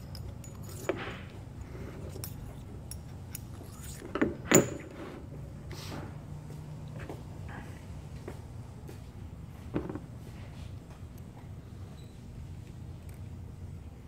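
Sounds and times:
metal parts clicking and clinking: 0.0s - 5.0s.

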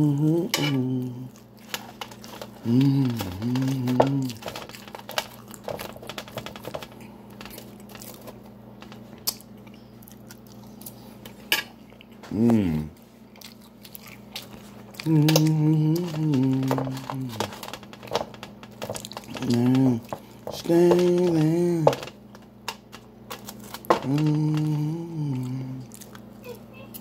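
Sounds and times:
wordless voice: 0.0s - 1.3s, 2.6s - 4.4s, 15.0s - 17.6s, 19.3s - 22.0s, 24.0s - 27.0s
chewing with wet mouth clicks: 9.2s - 12.2s, 13.3s - 15.5s, 25.8s - 27.0s.

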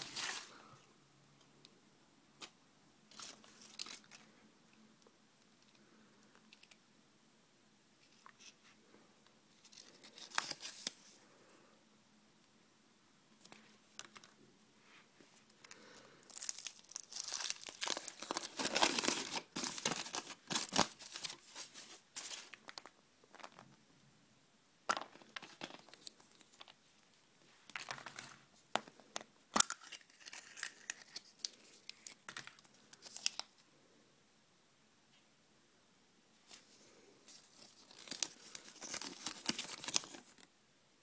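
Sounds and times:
foil wrapper crinkling and tearing: 16.2s - 22.6s, 29.6s - 33.5s, 37.5s - 40.4s.

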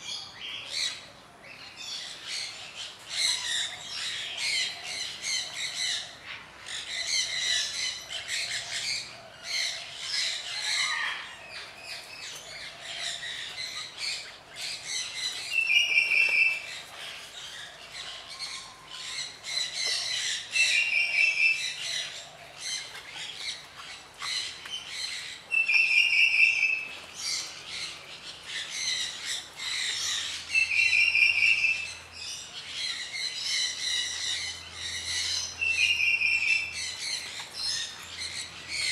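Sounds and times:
birds chirping and calling: 0.0s - 38.9s.

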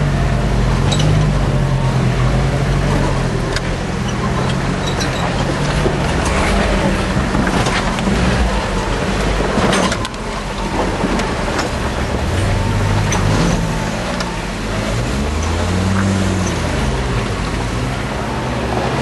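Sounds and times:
vehicle engine revving under load: 0.0s - 19.0s
vehicle knocks and rattles: 2.7s - 17.7s.

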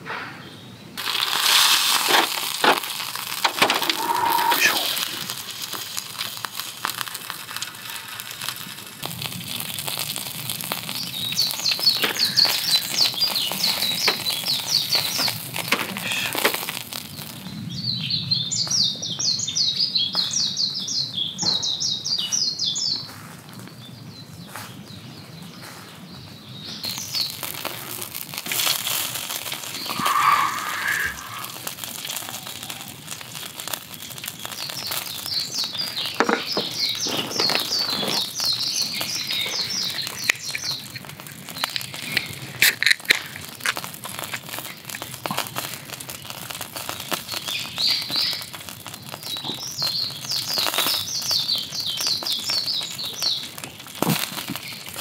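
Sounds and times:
sharp cracks: 1.0s - 17.6s, 26.8s - 55.0s
fat dripping onto heat: 1.0s - 18.2s, 26.8s - 55.0s
steak sizzling on a grill: 1.0s - 18.7s, 26.8s - 55.0s
songbirds trilling: 3.5s - 5.3s, 10.8s - 22.9s, 29.6s - 42.4s.

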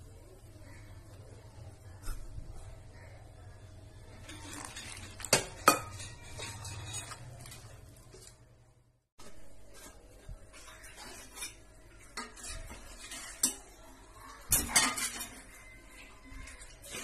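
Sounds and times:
metal bowl and utensils clinking: 4.0s - 8.5s, 9.2s - 17.0s.

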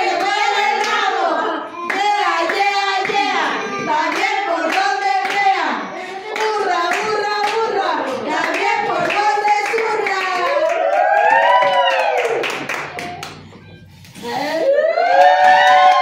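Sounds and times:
women singing together: 0.0s - 10.8s
rhythmic hand clapping: 0.0s - 14.2s, 15.0s - 16.0s.

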